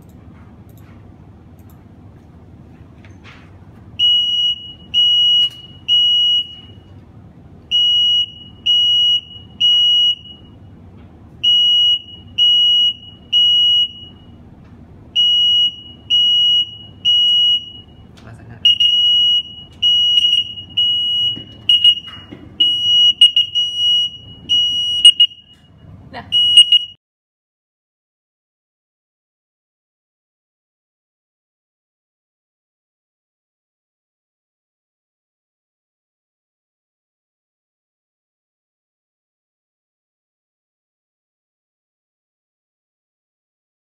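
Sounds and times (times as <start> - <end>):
smoke alarm beeping: 4.0 - 6.9, 7.7 - 10.6, 11.4 - 14.4, 15.2 - 18.0, 18.6 - 25.7, 26.3 - 27.0.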